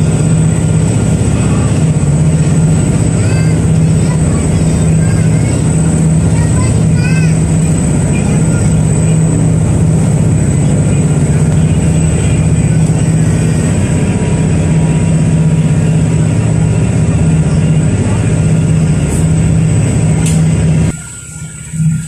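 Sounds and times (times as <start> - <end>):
ferry engines droning: 0.0 - 22.0
thin high whine: 20.9 - 22.0.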